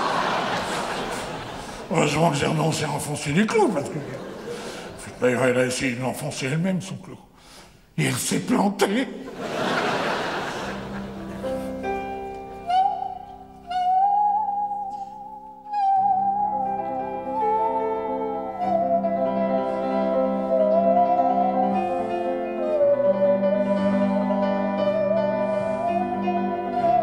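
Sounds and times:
piano chords: 0:09.2 - 0:27.0
bowed musical saw melody: 0:10.6 - 0:27.0.

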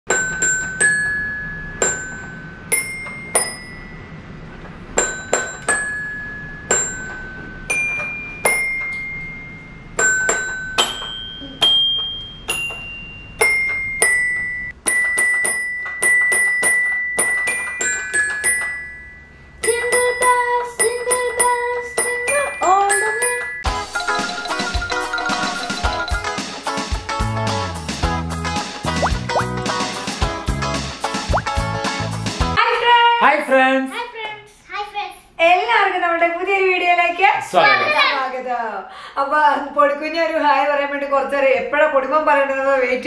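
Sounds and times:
toy xylophone notes: 0:00.1 - 0:04.0, 0:05.1 - 0:26.4.

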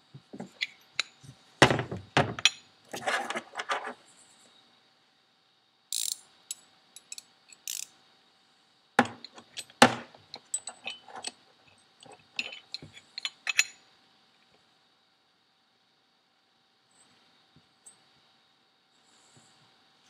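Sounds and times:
metallic clicks from hand tools: 0:05.9 - 0:07.9.

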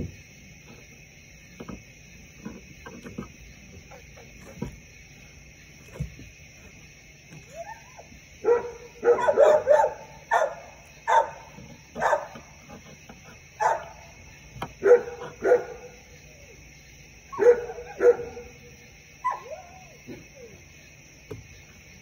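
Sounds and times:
dog yipping: 0:07.4 - 0:12.5, 0:13.6 - 0:14.0, 0:17.3 - 0:18.5, 0:19.2 - 0:20.6.

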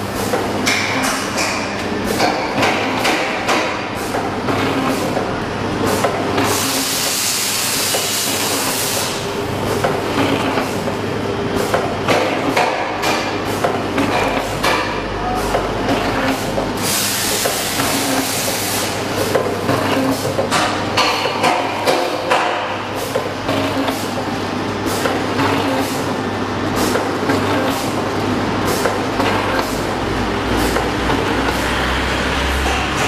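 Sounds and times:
compressed air hiss: 0:06.6 - 0:09.2, 0:16.8 - 0:19.0.

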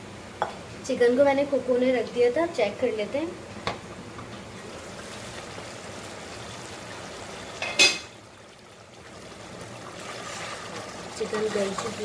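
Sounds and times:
gravy bubbling in pot: 0:04.4 - 0:12.0
metal lid clanking: 0:07.6 - 0:08.1.

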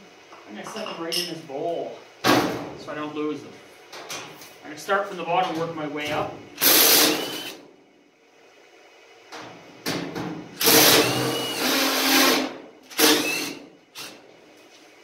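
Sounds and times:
cordless drill running: 0:06.6 - 0:07.6, 0:10.6 - 0:14.2.

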